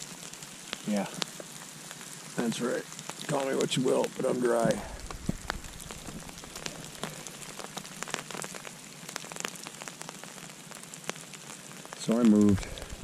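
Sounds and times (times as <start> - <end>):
rain hissing: 0.0 - 13.0
raindrops tapping umbrella fabric: 0.0 - 13.0.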